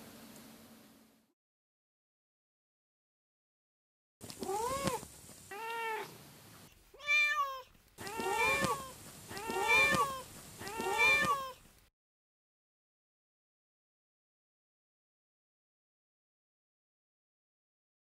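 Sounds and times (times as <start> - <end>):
cat meowing: 4.4 - 6.2, 7.0 - 11.6.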